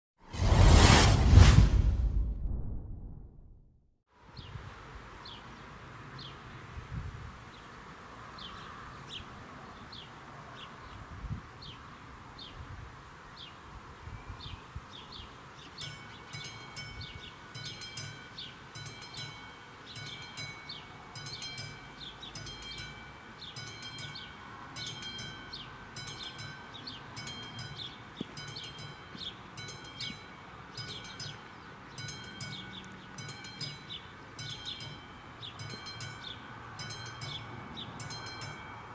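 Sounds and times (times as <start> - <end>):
high bird chirps: 15.6 - 38.6
electronic crossing warning bell: 15.8 - 38.9.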